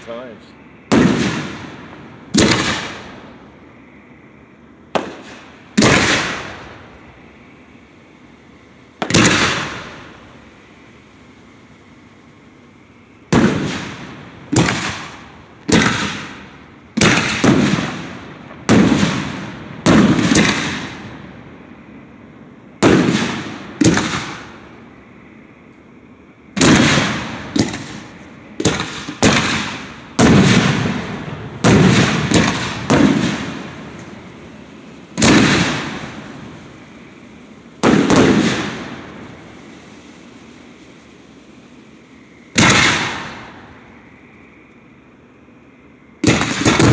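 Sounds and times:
firework shells booming: 0.8s - 3.7s, 4.9s - 7.3s, 8.8s - 11.0s, 13.2s - 21.8s, 22.8s - 25.0s, 26.5s - 41.0s, 41.7s - 44.0s, 46.2s - 46.9s.

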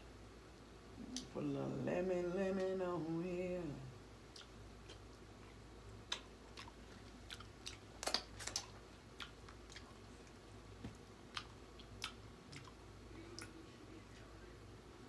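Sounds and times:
chewing and cracking crab shells: 5.9s - 12.8s.

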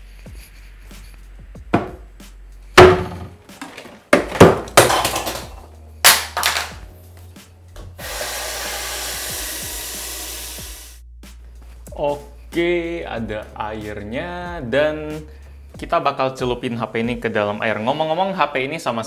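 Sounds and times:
hard objects knocking and clattering: 1.7s - 2.1s, 2.8s - 6.8s.

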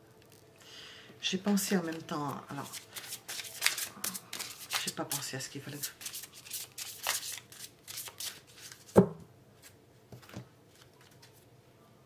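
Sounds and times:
cards being shuffled: 1.8s - 9.0s, 9.6s - 11.4s.

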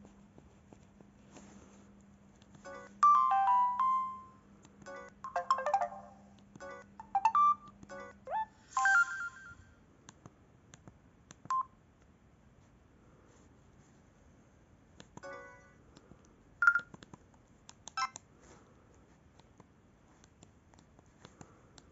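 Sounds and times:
phone message alert tones: 2.7s - 4.3s, 4.9s - 9.6s.

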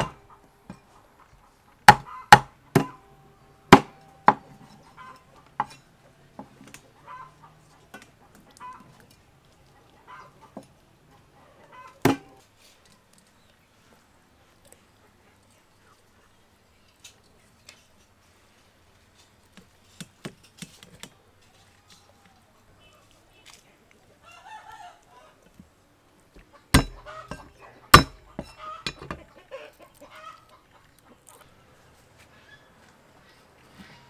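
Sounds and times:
chickens clucking: 0.0s - 12.4s, 21.2s - 34.0s
rooster crowing: 24.2s - 25.4s
metal kitchenware knocks: 26.8s - 29.2s.

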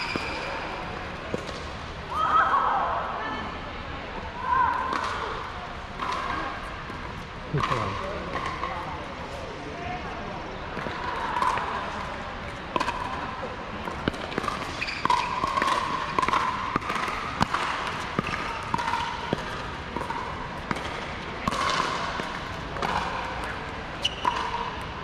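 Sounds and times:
ball bouncing on hard court: 13.8s - 25.0s.

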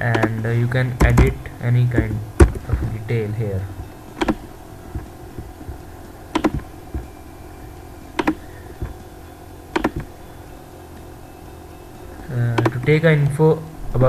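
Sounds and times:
faint steady hum: 0.0s - 14.0s
computer mouse clicking: 4.2s - 5.5s, 6.3s - 7.0s, 8.2s - 9.0s, 9.8s - 10.1s.

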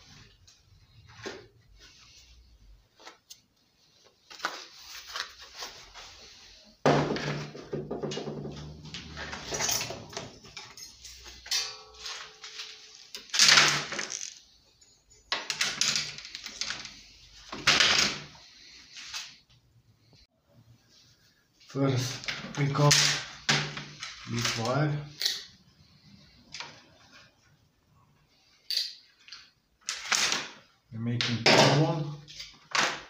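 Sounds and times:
plastic and metal parts clattering: 6.9s - 14.5s, 15.3s - 18.3s, 22.0s - 24.8s.

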